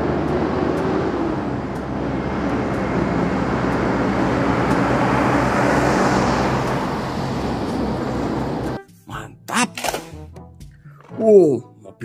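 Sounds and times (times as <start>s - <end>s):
tyre and road noise: 0.0s - 8.8s
truck engine hum: 0.0s - 9.7s.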